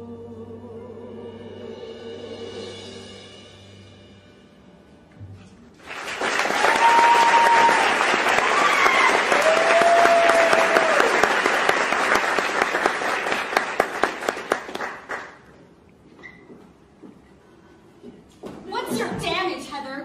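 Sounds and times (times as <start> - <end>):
audience applauding and cheering: 5.8 - 15.5
drawn-out whoops: 6.5 - 11.3.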